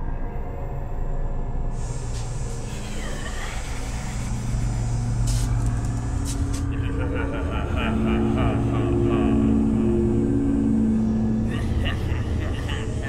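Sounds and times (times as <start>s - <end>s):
low mechanical rumble: 0.6s - 13.0s
hiss: 1.8s - 6.7s.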